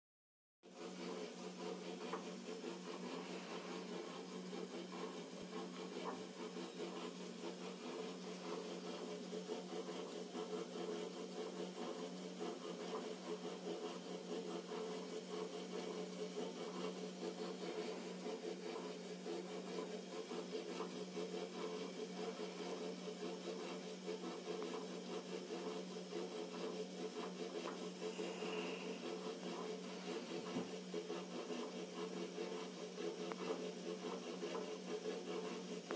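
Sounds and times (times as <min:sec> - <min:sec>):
fast irregular rattle: 0:00.7 - 0:35.9
lathe spindle humming: 0:00.7 - 0:35.9
thin high whine: 0:28.0 - 0:30.4.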